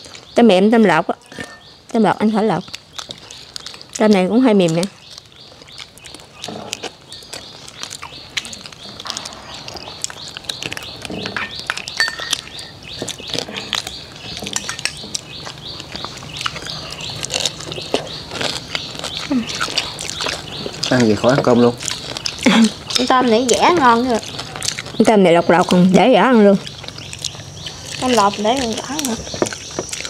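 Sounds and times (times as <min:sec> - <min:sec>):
birds chirping: 0:00.0 - 0:30.0
spoons clinking against ceramic bowls: 0:01.3 - 0:01.7, 0:11.3 - 0:12.8, 0:14.4 - 0:15.2.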